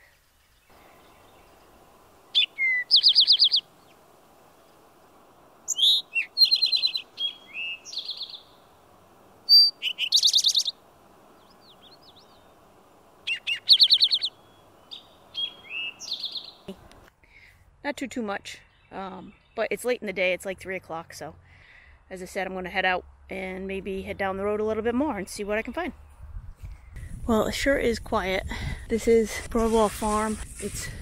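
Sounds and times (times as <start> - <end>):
faint steady hiss: 0.0 - 18.4
bird song with buzzy trill: 0.4 - 4.1, 5.7 - 8.8, 9.4 - 16.8, 18.4 - 20.3
bird chirps: 0.5 - 4.0, 5.7 - 8.8, 9.4 - 12.6, 13.2 - 16.8.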